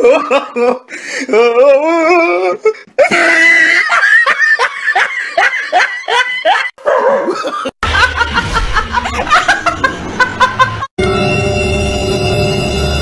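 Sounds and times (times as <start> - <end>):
woman laughing loudly: 3.0 - 10.9
background music: 11.0 - 13.0.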